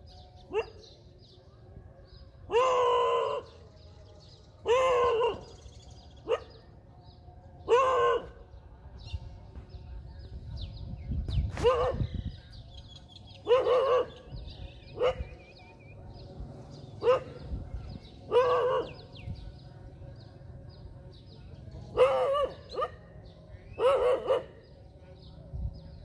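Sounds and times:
faint birds chirping: 0.0 - 26.0
dog barking: 0.5 - 0.9, 4.6 - 5.6, 6.2 - 6.6, 7.6 - 8.4, 11.5 - 12.1, 13.4 - 14.3, 14.9 - 15.3, 17.0 - 17.6, 18.3 - 19.1, 21.9 - 23.0, 23.6 - 25.3.

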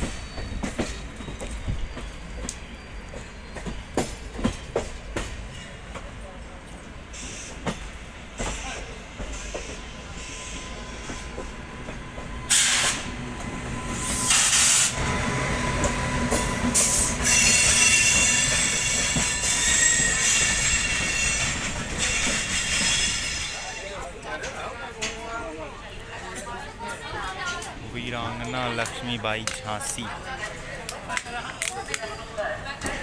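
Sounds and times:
train wheels clicking over rail joints: 0.0 - 6.1
high wheel squeal: 16.3 - 24.0.

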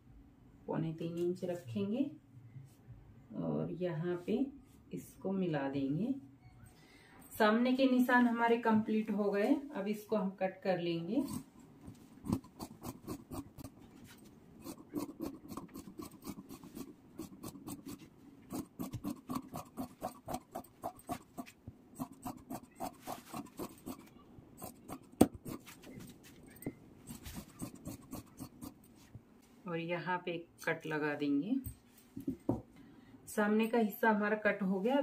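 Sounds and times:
scissors snipping fabric: 12.2 - 28.8.

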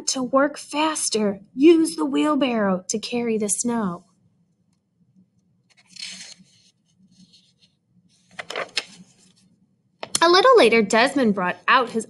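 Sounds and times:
page turning swish: 5.7 - 9.5.

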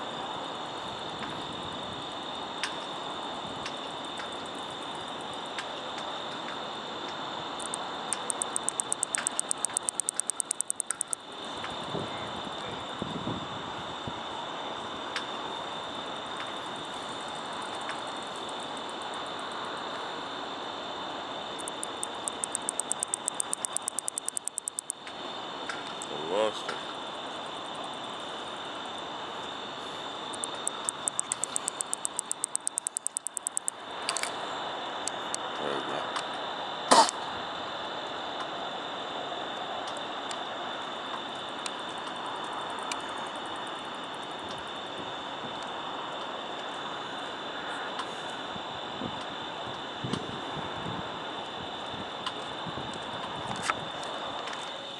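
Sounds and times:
katydid clicking song: 7.6 - 11.3, 21.6 - 25.2, 25.9 - 26.5, 30.3 - 34.3
constant high tone: 7.6 - 13.0, 21.5 - 25.1, 25.9 - 33.8.

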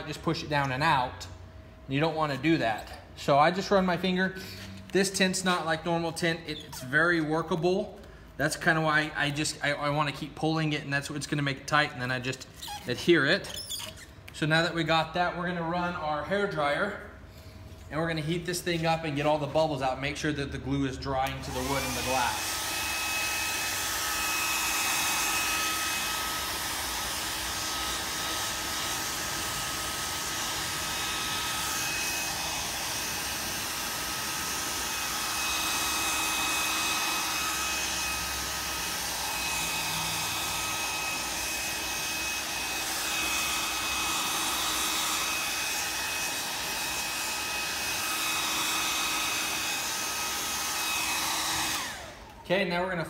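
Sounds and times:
hair dryer blowing: 3.4 - 7.2, 21.2 - 52.4.

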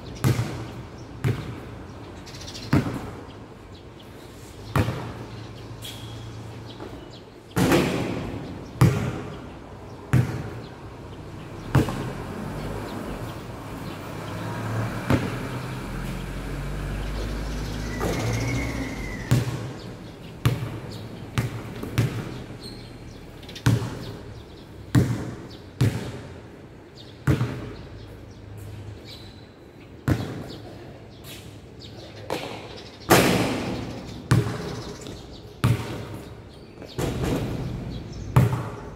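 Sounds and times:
basketball bouncing echoing: 0.2 - 1.8, 2.7 - 3.2, 4.7 - 5.2, 7.6 - 9.5, 10.1 - 10.7, 11.6 - 12.2, 15.0 - 15.7, 19.2 - 22.8, 23.6 - 26.4, 27.2 - 27.9, 30.0 - 30.8, 32.3 - 38.9.

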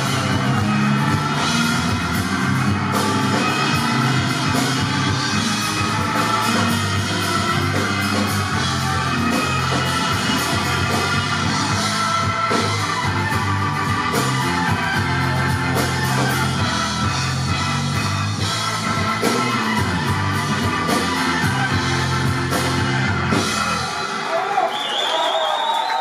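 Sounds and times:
bass guitar: 0.0 - 24.1
electric guitar: 0.0 - 24.1
drum kit with cymbals: 0.0 - 24.2.

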